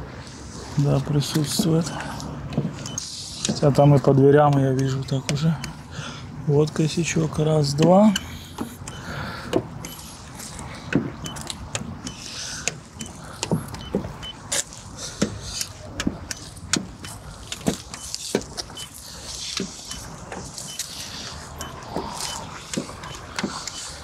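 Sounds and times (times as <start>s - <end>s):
probe clicks and taps: 10.9s - 19.0s, 21.5s - 24.0s.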